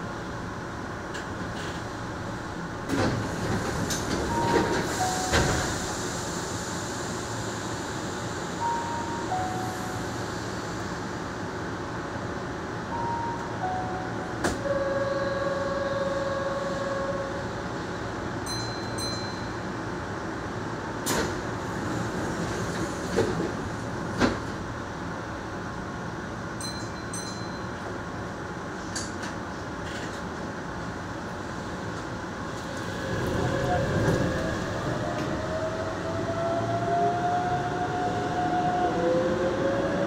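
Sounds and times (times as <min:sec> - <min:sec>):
train humming: 0:00.0 - 0:40.0
falling two-note chime: 0:08.6 - 0:10.2.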